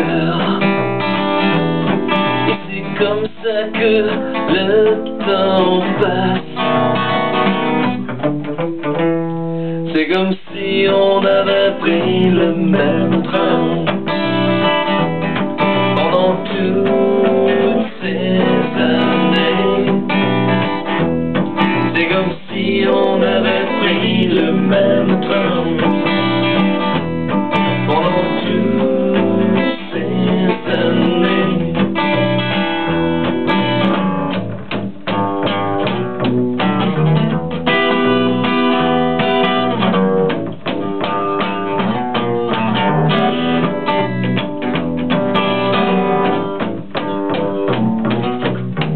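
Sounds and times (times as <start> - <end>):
acoustic guitar: 0.0 - 48.9
bass guitar: 0.0 - 48.9.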